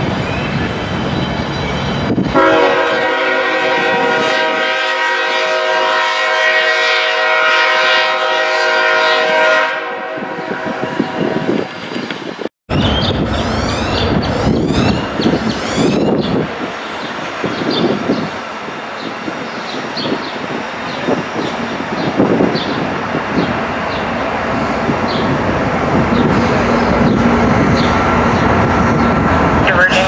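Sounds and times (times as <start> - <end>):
train rolling on rails: 0.0 - 30.0
train air horn chord: 2.4 - 11.5
high squeals of wheels: 12.7 - 17.0.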